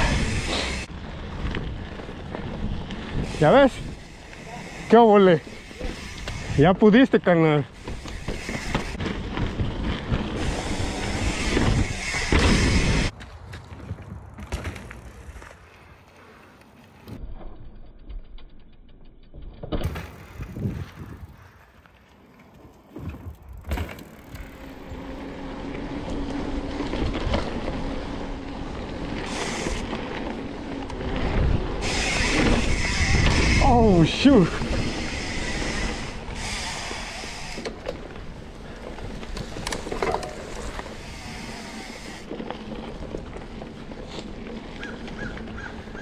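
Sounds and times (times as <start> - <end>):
wind rumbling on microphone: 0.0 - 4.3, 20.2 - 21.8, 24.4 - 36.6
mountain bike tyres on dirt: 0.0 - 46.0.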